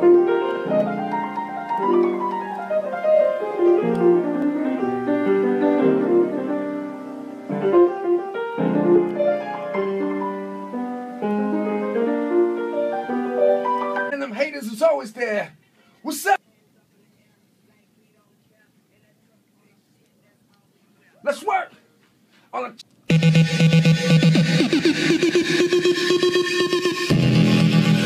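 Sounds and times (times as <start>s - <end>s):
piano playing: 0.0s - 14.4s, 23.1s - 28.0s.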